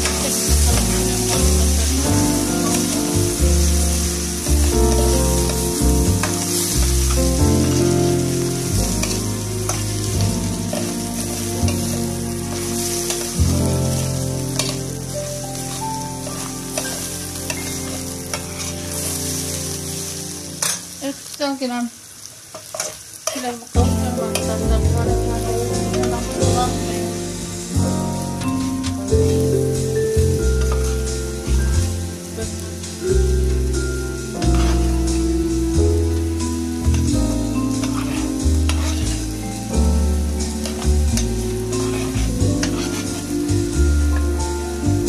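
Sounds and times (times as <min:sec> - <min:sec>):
grains sizzling in pot: 0:00.0 - 0:45.0
metal ladle scraping pot: 0:37.8 - 0:39.2, 0:41.7 - 0:43.3.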